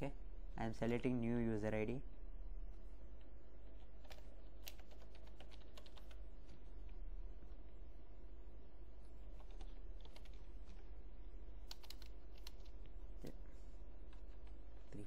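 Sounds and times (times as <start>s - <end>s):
low hum: 0.0s - 15.0s
keyboard typing clicks: 4.0s - 6.2s, 9.3s - 10.8s, 11.6s - 12.9s.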